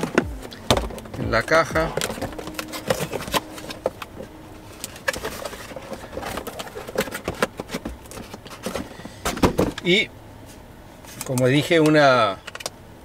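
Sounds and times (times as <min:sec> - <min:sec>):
cardboard box crinkling and scraping: 0:00.0 - 0:09.8.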